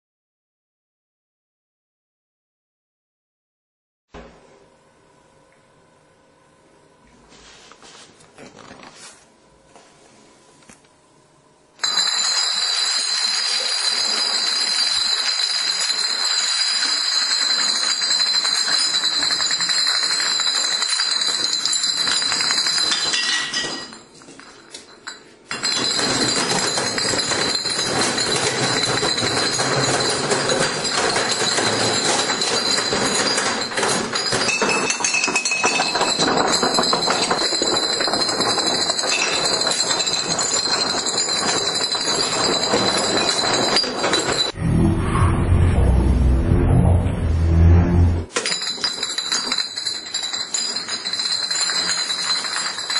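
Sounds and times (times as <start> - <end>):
glass bottles clinking and clattering: 11.8 - 44.6, 48.3 - 52.9.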